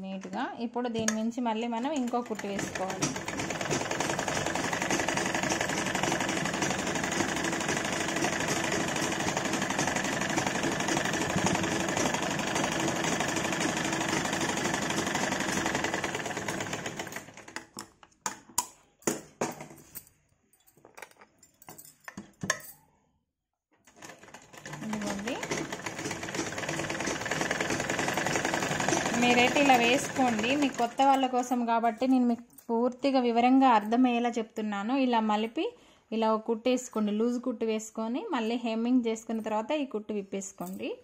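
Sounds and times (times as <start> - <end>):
sewing machine running: 2.0 - 17.6, 23.9 - 31.4.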